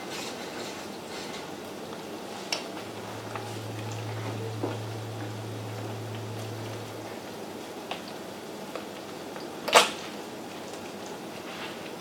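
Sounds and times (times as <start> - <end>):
low steady hum: 2.7 - 8.2.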